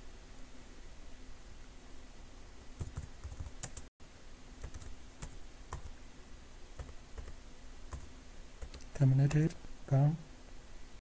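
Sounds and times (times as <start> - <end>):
keyboard keys clicking: 2.8 - 3.8.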